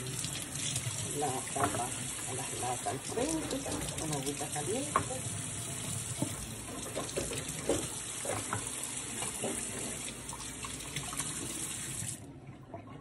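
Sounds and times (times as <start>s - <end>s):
water splashing on cans: 0.0s - 5.2s
tap water running into sink: 0.0s - 12.3s.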